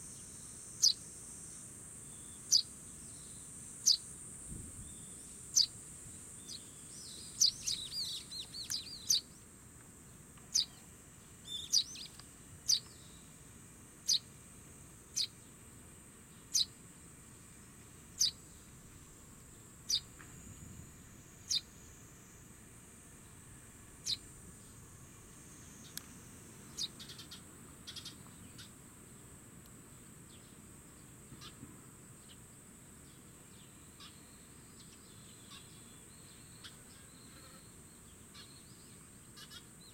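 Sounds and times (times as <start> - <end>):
high insect trill: 0.0 - 39.9
sparrow chirping: 0.8 - 1.0, 2.1 - 4.1, 4.8 - 9.4, 10.5 - 10.8, 11.4 - 13.2, 14.0 - 14.3, 15.1 - 15.4, 16.4 - 16.8, 18.2 - 18.7, 19.8 - 20.1, 21.4 - 21.8, 24.0 - 24.8, 26.7 - 28.8, 33.6 - 37.4, 38.1 - 39.9
bird twittering: 6.4 - 9.2, 11.4 - 12.1, 19.9 - 20.1, 21.4 - 21.7, 24.0 - 24.2, 26.7 - 28.7.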